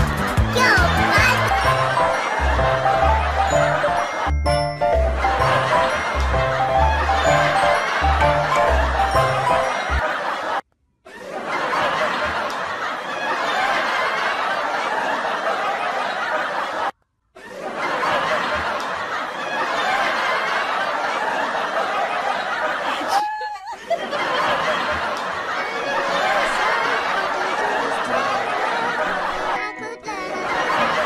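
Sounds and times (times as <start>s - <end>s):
snickering and giggling laughter: 8.7s - 31.0s.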